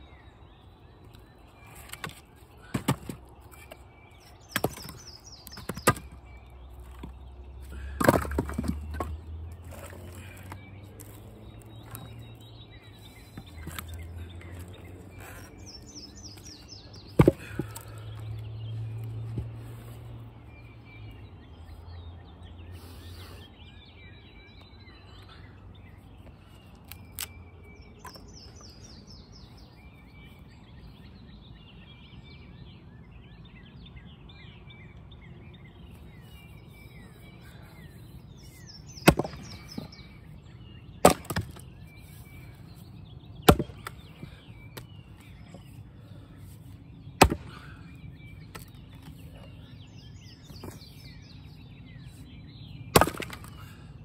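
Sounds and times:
birds chirping: 0.0 - 54.0
axe splitting firewood: 1.8 - 3.8, 4.4 - 6.3, 6.9 - 12.2, 13.3 - 18.2, 38.4 - 40.0, 41.0 - 42.0, 43.4 - 44.9, 47.2 - 47.8, 52.9 - 53.8.

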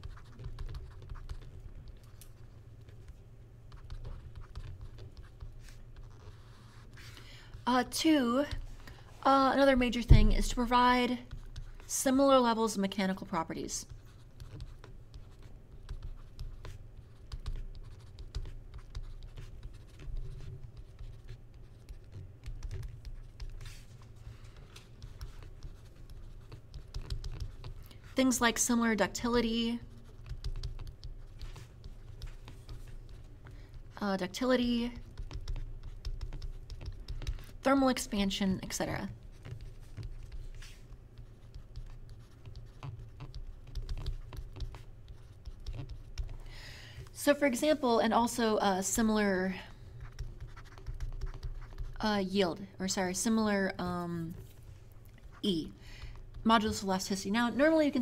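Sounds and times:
stylus scratching on tablet: 0.0 - 46.4, 47.0 - 58.0.

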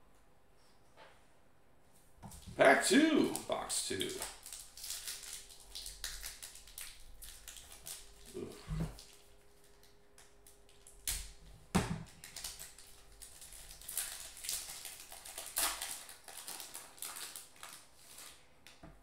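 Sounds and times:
foil wrapper tearing and crinkling: 2.4 - 11.4, 12.0 - 18.5.

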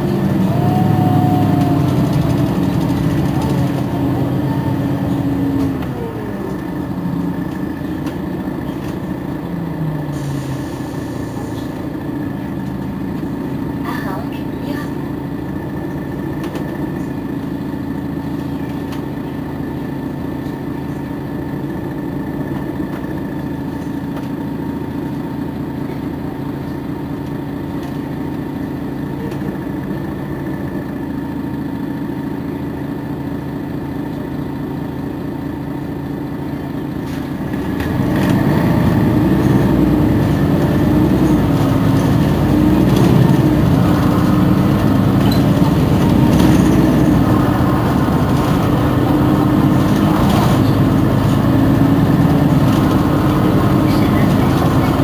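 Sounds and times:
bus diesel engine idling: 0.0 - 55.0.

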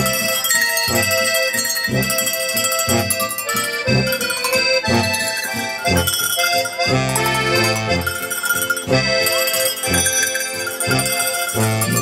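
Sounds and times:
accordion: 0.0 - 12.0
bass beat: 3.8 - 6.2, 6.8 - 8.2.

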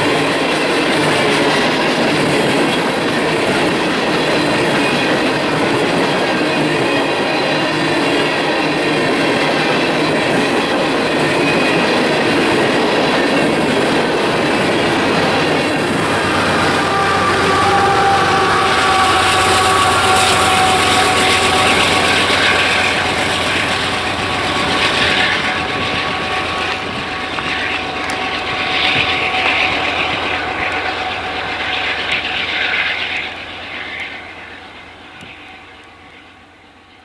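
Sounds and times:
locomotive engine with turbocharger whine: 10.9 - 36.2.

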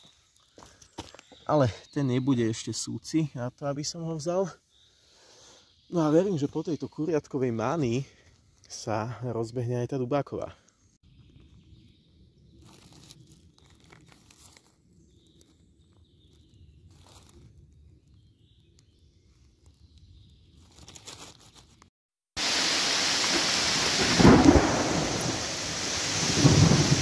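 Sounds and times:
heavy steady rain: 22.4 - 27.0
low roll of thunder: 23.7 - 27.0.

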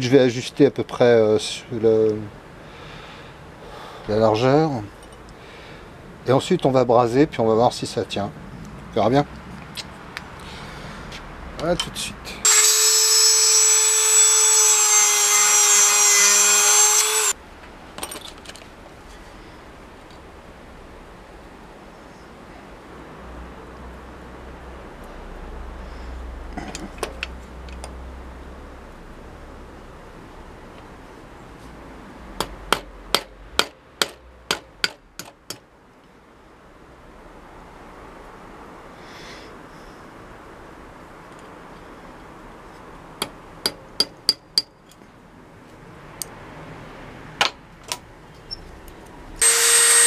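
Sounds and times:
rotary tool whining: 12.4 - 17.4, 49.4 - 50.0
hammer tapping on steel: 43.2 - 44.8.

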